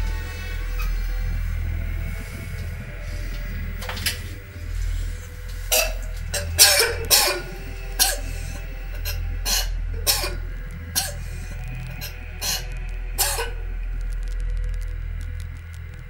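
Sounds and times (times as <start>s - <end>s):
woman coughing and retching: 5.7s - 8.4s, 9.0s - 10.4s, 11.0s - 11.2s, 13.2s - 13.6s.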